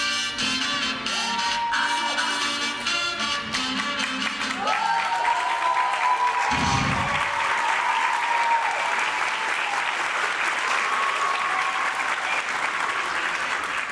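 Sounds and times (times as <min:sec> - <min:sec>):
cheers and whoops: 0:01.1 - 0:02.4, 0:04.5 - 0:12.5
audience clapping: 0:03.6 - 0:13.9
low thud: 0:06.5 - 0:07.3.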